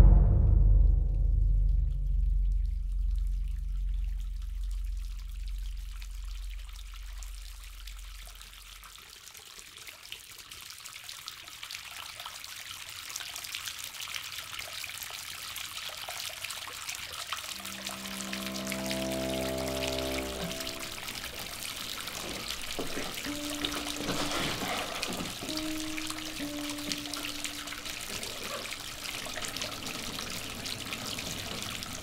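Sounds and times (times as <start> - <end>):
low deep musical note: 0.0 - 8.0, 17.5 - 32.0
bathtub tap water running: 17.3 - 32.0.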